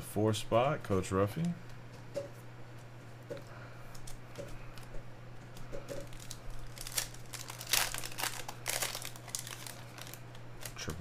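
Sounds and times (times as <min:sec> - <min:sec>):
low electrical hum: 0:00.0 - 0:11.0
foil wrapper rustling and crinkling: 0:05.5 - 0:11.0.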